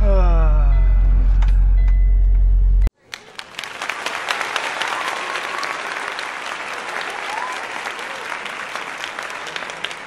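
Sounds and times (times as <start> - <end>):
applause: 2.9 - 10.0.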